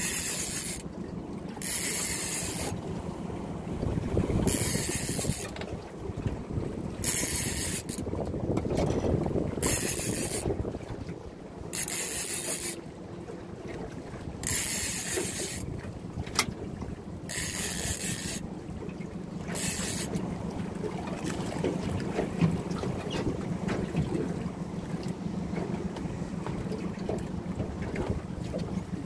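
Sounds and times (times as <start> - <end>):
fishing reel buzzing: 0.0 - 0.8, 1.6 - 2.8, 4.5 - 5.6, 7.0 - 8.0, 9.6 - 10.5, 11.7 - 12.8, 14.4 - 15.7, 17.3 - 18.4, 19.5 - 20.2.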